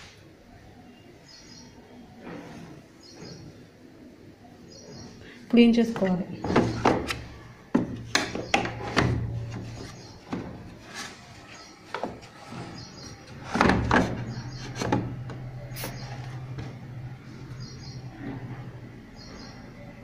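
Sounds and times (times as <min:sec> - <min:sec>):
sharp knocks and bumps: 0:05.9 - 0:11.2, 0:11.8 - 0:16.9.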